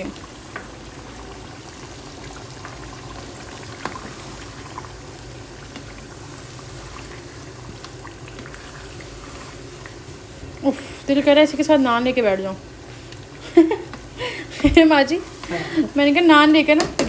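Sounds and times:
sauce simmering and bubbling: 0.0 - 17.0
spoon knocking against pan: 16.7 - 17.0.

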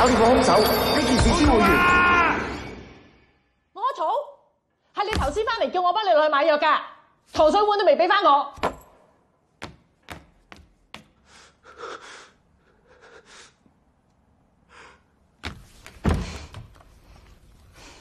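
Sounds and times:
soft breathy sounds: 11.2 - 13.8.

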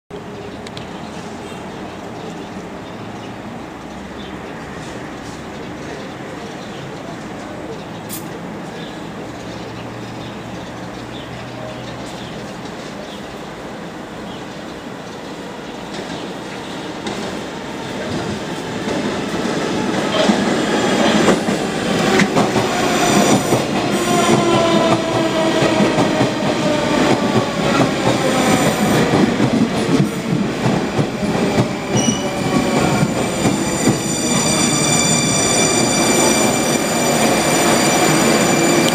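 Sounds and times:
high-pitched brake squeal: 31.9 - 38.9.

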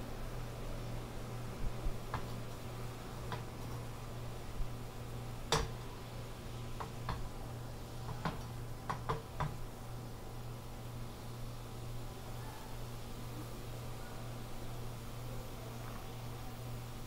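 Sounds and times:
steady low hum: 0.0 - 17.0
clicks and taps from frying pan: 5.5 - 5.7.

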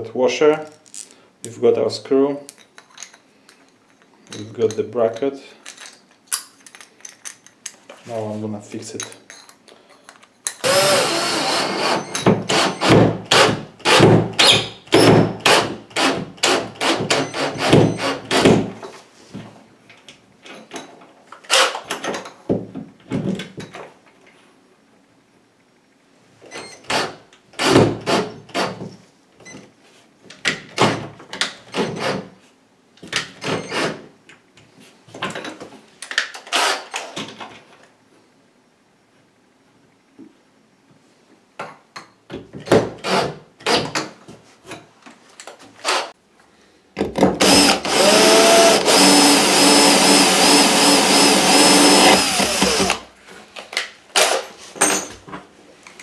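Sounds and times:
cordless drill driving screw: 10.6 - 18.4, 36.5 - 36.8, 47.4 - 53.1.

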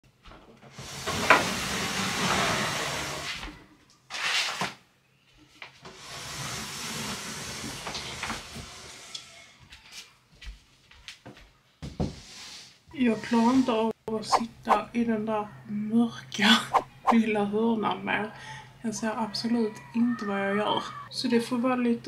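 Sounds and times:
desk legs scraping wooden floor: 0.8 - 3.4.

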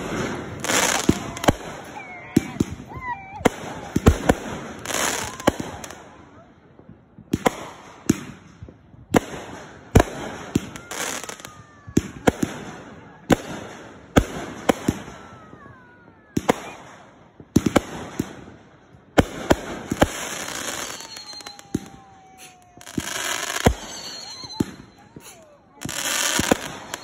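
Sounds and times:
firework crackling: 0.0 - 6.2, 7.2 - 27.0
firework bangs: 0.0 - 27.0
faint falling whistles: 20.4 - 27.0.

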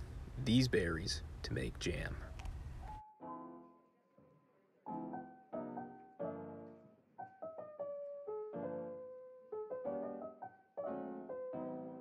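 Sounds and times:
piano music: 2.9 - 12.0.

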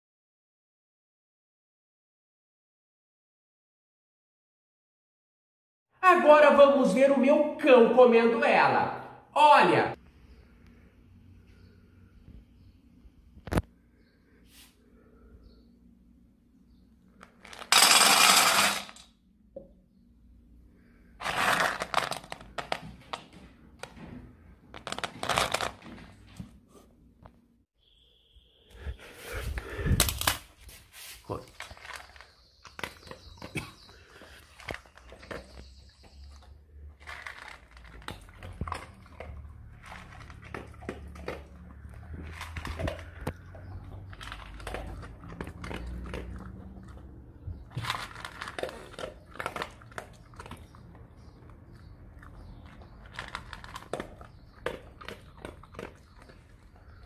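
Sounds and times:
dog crunching dry kibble: 21.2 - 24.0, 24.7 - 26.3, 31.3 - 57.0.

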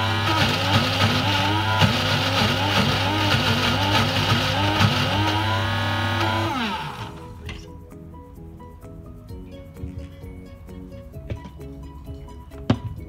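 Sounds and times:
blender motor running: 0.0 - 7.3
soft music with plucked notes: 6.6 - 13.0.

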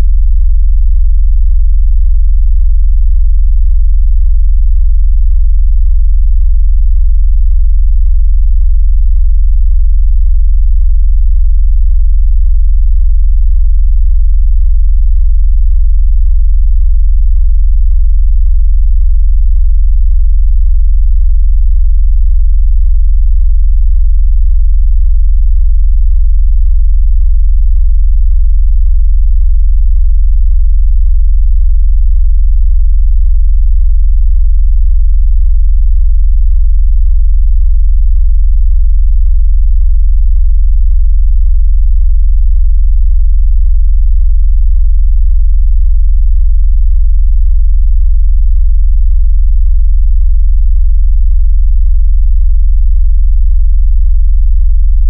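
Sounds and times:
deep synthetic bass tone: 0.0 - 35.8.

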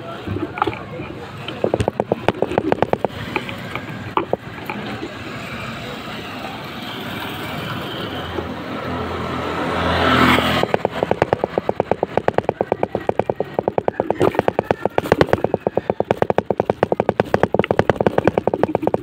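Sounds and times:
rapid even ticking: 1.5 - 4.8, 10.3 - 19.0
motorcycle passing: 1.6 - 19.0.

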